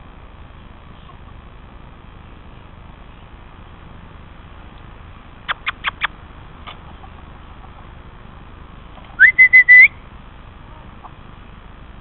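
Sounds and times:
whistle feeding call: 0:09.2 - 0:10.0.

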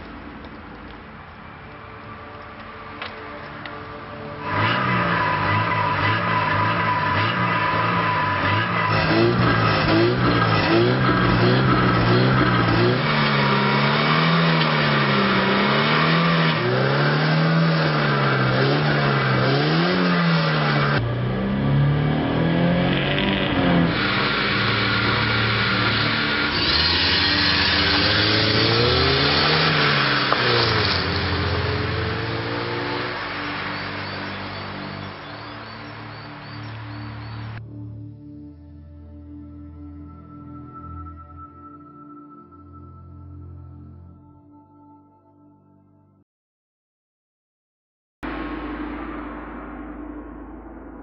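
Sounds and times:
low ambient drones: 0:00.0 - 0:45.3, 0:48.2 - 0:51.0
car engine revving: 0:04.4 - 0:37.6
high held tone: 0:37.1 - 0:45.9.

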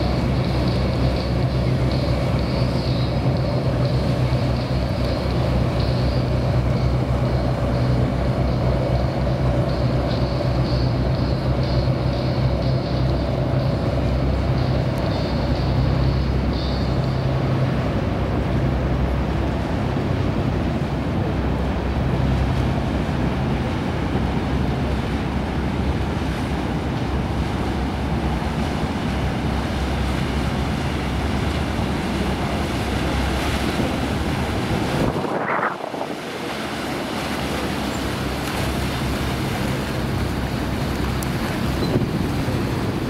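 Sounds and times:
low rumble of boat engines: 0:00.0 - 0:43.0
water sloshing against wharf: 0:00.0 - 0:43.0
wind on microphone: 0:31.0 - 0:37.3, 0:40.0 - 0:43.0.

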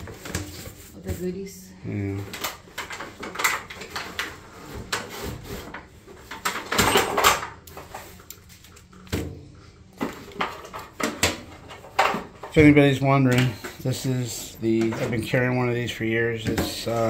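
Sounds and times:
paper and cardboard rustling: 0:00.0 - 0:01.5.

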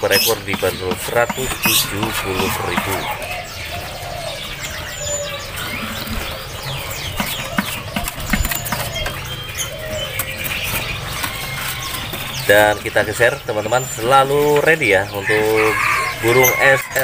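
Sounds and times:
songbirds chirping and whistling: 0:00.0 - 0:17.0.

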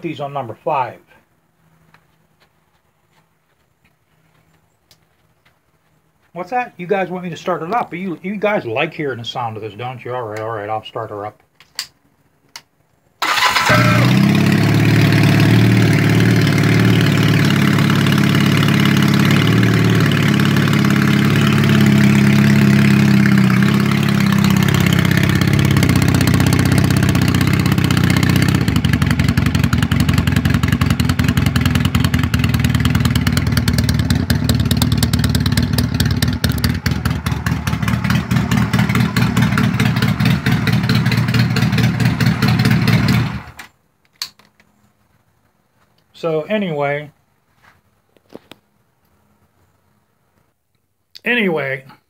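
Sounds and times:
motorcycle engine idling: 0:13.2 - 0:43.6.

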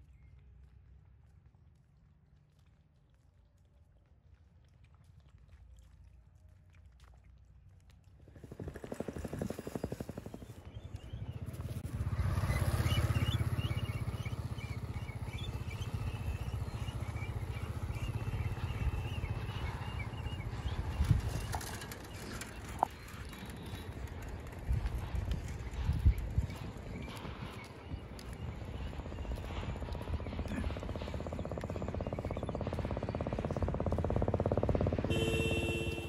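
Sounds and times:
motorcycle engine running: 0:08.4 - 0:36.0.

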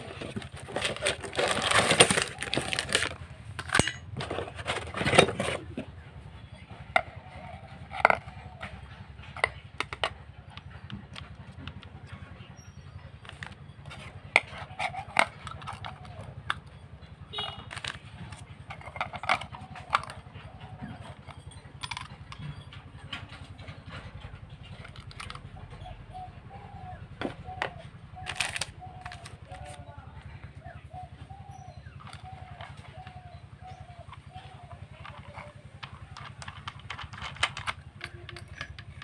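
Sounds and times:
metal parts clicking and clinking: 0:00.0 - 0:05.8, 0:13.2 - 0:16.8, 0:17.4 - 0:25.7, 0:28.2 - 0:29.8, 0:31.9 - 0:39.0.

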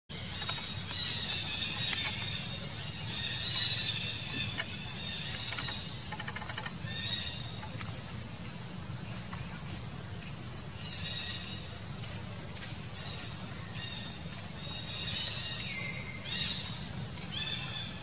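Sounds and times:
steady low hum: 0:00.1 - 0:18.0
quick run of clicks: 0:04.3 - 0:06.8.

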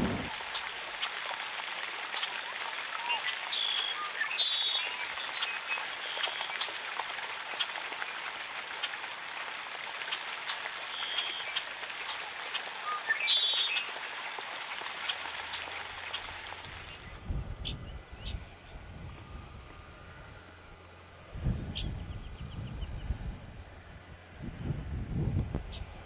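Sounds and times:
crackling hiss: 0:00.0 - 0:02.5
small birds singing: 0:03.0 - 0:06.9, 0:10.8 - 0:13.9, 0:15.0 - 0:18.9, 0:21.6 - 0:23.4
whistled bird notes: 0:12.3 - 0:13.9.

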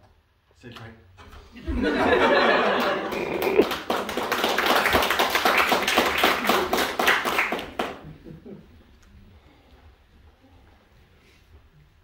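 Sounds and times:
audience applauding: 0:02.1 - 0:08.2.

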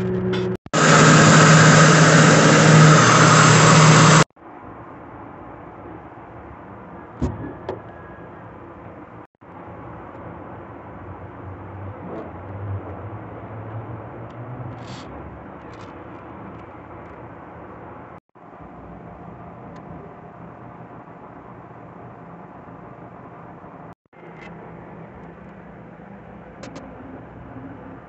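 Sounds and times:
faint clicks and scrapes: 0:14.3 - 0:17.3.

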